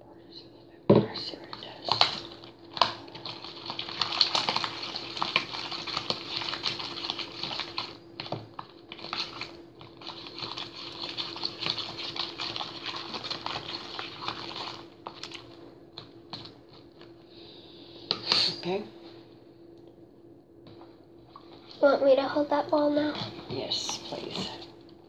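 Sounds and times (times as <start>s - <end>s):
steady low hum: 0.0s - 25.0s
slime squelching and crackling: 1.4s - 17.2s.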